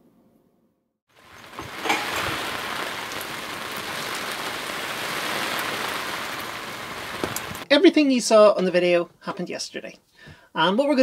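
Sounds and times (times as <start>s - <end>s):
rain falling on water: 1.1s - 7.7s.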